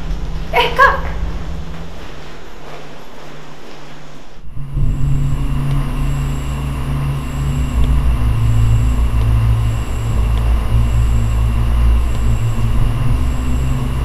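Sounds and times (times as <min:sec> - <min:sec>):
pulsing low rumbling drone: 0:00.0 - 0:03.3, 0:04.2 - 0:14.0
soft low pulsing hum: 0:00.0 - 0:14.0
high ringing tones: 0:04.5 - 0:14.0.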